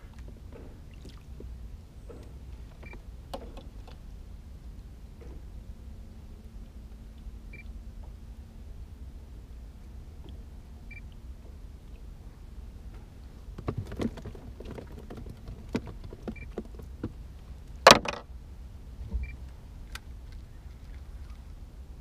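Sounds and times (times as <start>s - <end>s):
low steady rumble: 0.0s - 22.0s
fishing tackle clattering on boat: 13.0s - 17.2s.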